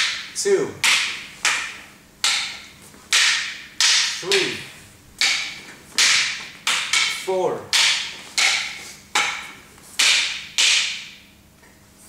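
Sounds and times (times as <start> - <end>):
fighting sticks clashing: 0.0 - 11.3.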